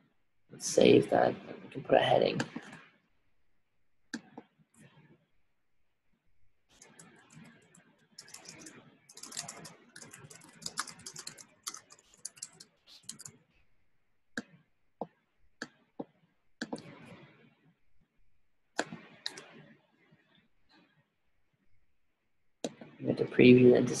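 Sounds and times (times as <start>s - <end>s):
typing on computer keyboard: 6.7s - 13.4s, 18.8s - 19.5s.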